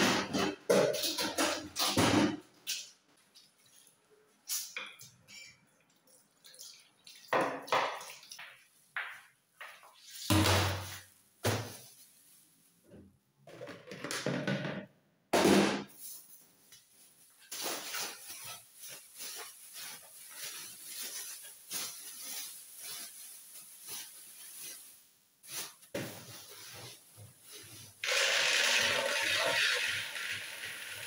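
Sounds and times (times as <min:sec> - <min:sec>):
tap water splashing: 0:06.4 - 0:09.2
plastic bag crinkling: 0:16.0 - 0:28.0.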